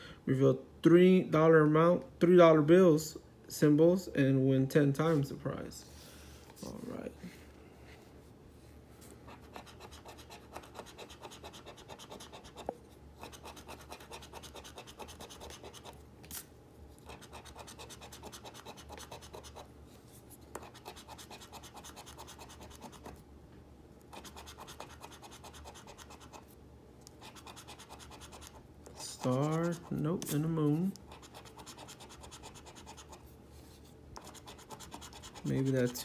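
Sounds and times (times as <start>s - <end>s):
coin scratching lottery ticket: 9.4s - 12.6s, 13.2s - 16.0s, 17.0s - 19.7s, 20.6s - 23.1s, 24.1s - 26.4s, 27.2s - 30.5s, 31.1s - 33.2s, 34.2s - 36.0s.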